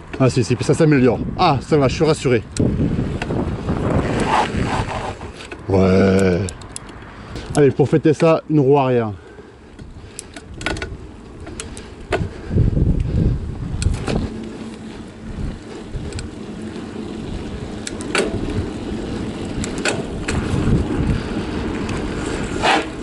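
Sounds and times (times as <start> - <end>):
bike clicks and rattles: 0.0 - 23.0
bike tyre rumble on asphalt: 0.0 - 23.0
wind on microphone: 1.0 - 5.8, 9.8 - 23.0.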